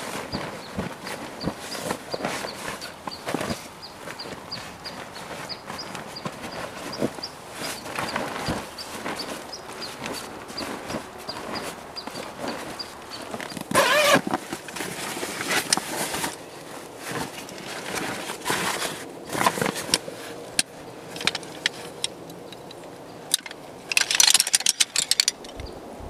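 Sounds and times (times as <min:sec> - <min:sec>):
nylon fabric rustling: 0:00.0 - 0:22.0
metal poles clattering: 0:20.6 - 0:25.7.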